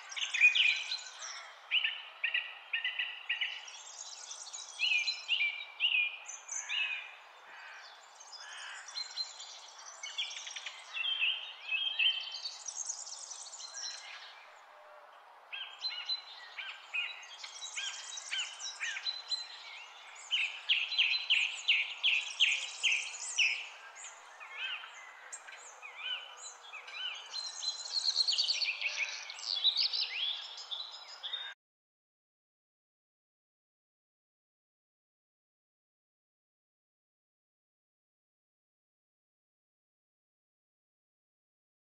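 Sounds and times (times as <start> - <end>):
songbirds singing and chirping: 0.0 - 31.6.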